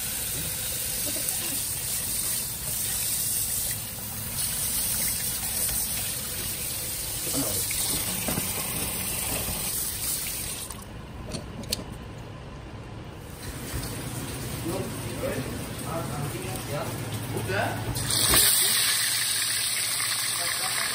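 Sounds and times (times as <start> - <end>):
tap water running into sink: 1.8 - 10.8.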